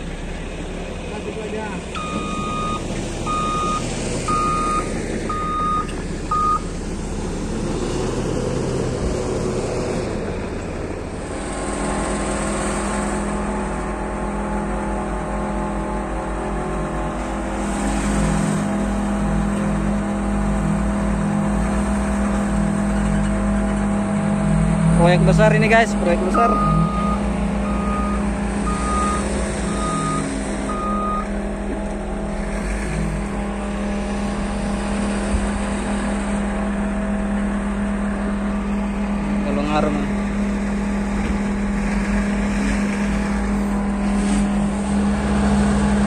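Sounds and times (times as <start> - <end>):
diesel earthmoving machinery droning: 0.0 - 46.0
reversing alarm beeping: 2.0 - 6.6, 26.3 - 31.3.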